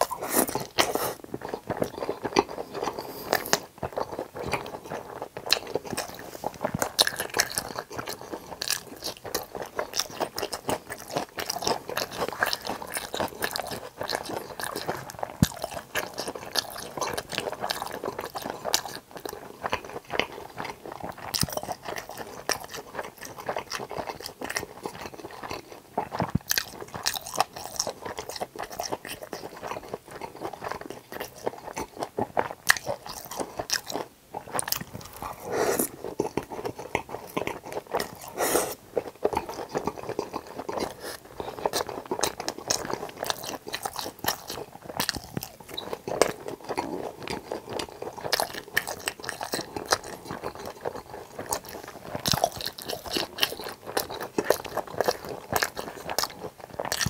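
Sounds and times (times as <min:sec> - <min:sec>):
person chewing crispy food: 0:00.0 - 0:57.0.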